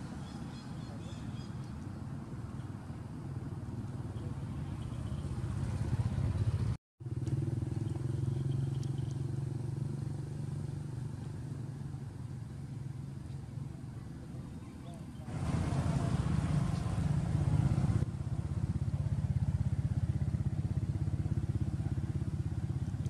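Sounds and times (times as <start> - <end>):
vehicle engine running: 3.1 - 14.4, 15.3 - 23.0.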